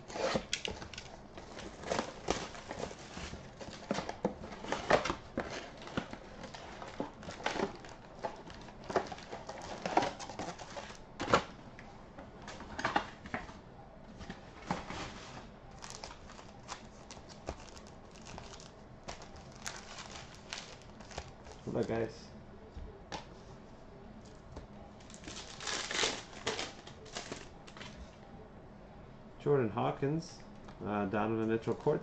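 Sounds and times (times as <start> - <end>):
foil packs crinkling: 0.0 - 11.5, 15.7 - 22.1, 25.0 - 28.0.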